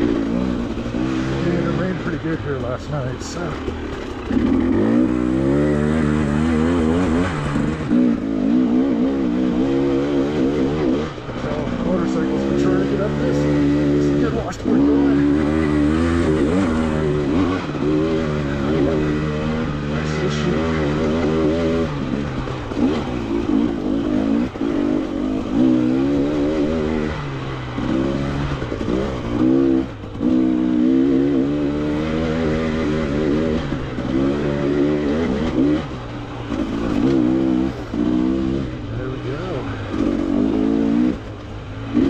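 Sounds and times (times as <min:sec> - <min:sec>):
dirt bike engine revving: 0:00.0 - 0:42.0.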